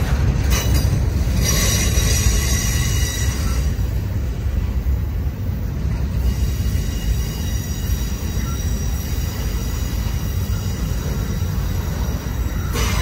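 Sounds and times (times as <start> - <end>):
freight train wheels rumbling on rail: 0.0 - 13.0
high wheel squeal: 1.3 - 3.9, 6.1 - 13.0.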